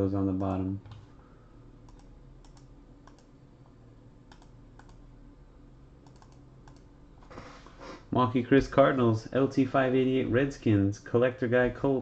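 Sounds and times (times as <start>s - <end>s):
steady low hum: 0.0s - 12.0s
computer keyboard clicks: 0.4s - 1.1s, 1.9s - 3.3s, 4.3s - 5.0s, 6.0s - 6.9s.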